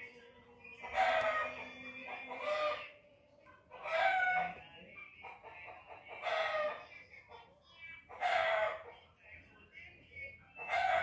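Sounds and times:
rooster crowing: 0.9s - 2.9s, 3.8s - 4.6s, 8.2s - 8.8s, 10.7s - 11.0s.

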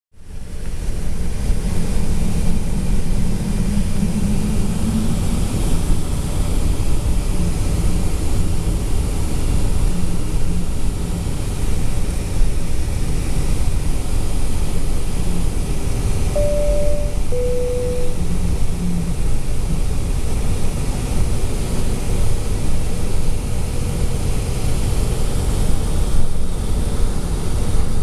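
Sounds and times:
low hum: 16.3s - 19.2s.

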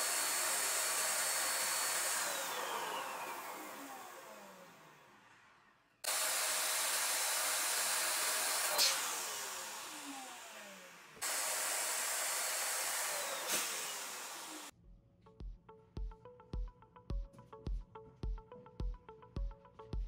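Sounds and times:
air hissing out of balloons: 11.2s - 14.4s.

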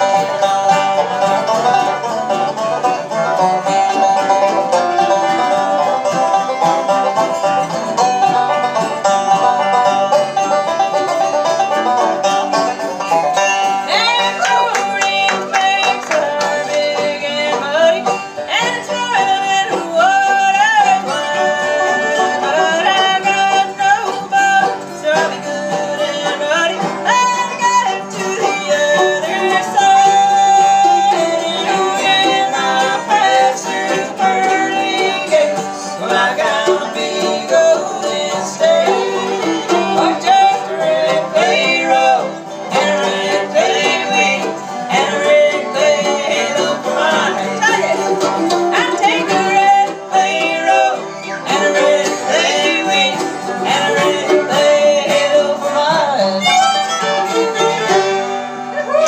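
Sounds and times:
banjo: 0.0s - 59.0s
fiddle: 0.0s - 59.0s
guitars: 0.0s - 59.0s.

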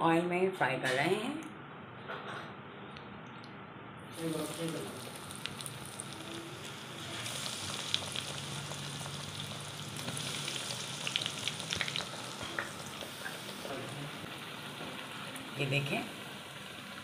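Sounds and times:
food sizzling in hot oil: 4.1s - 17.0s.

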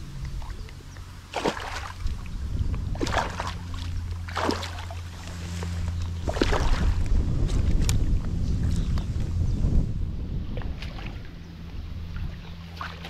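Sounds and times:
water splashing: 0.0s - 8.7s, 12.1s - 13.0s
steady low hum: 0.0s - 13.0s.

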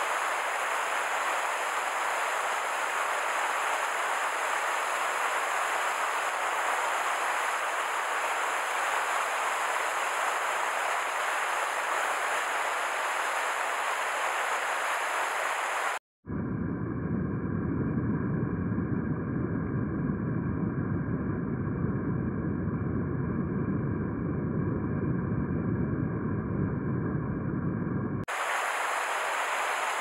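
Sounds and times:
water rushing over weir: 0.0s - 16.0s, 28.3s - 30.0s.

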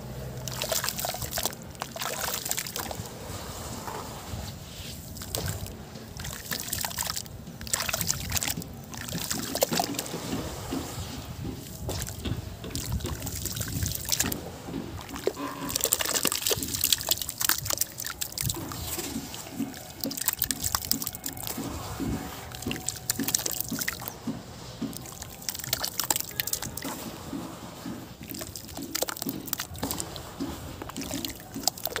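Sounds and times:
wet slurry sloshing: 0.0s - 32.0s
lumps plopping into water: 0.4s - 3.1s, 15.0s - 21.6s, 22.5s - 24.1s, 24.9s - 27.0s, 28.2s - 30.2s.

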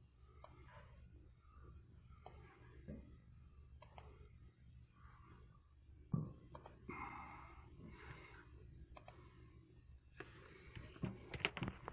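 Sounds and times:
small sharp clicks: 8.9s - 9.2s.

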